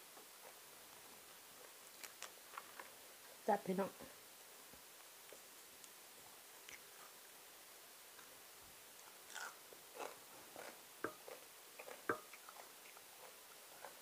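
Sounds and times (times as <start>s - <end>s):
chewing and mouth sounds: 9.0s - 14.0s.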